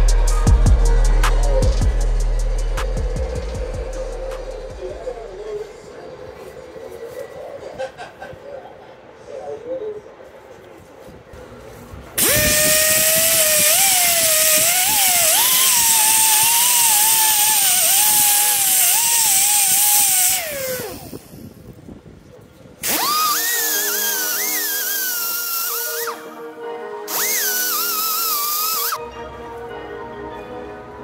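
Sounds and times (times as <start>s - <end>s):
die grinder grinding steel: 12.2s - 21.5s, 22.8s - 26.3s, 27.1s - 29.0s.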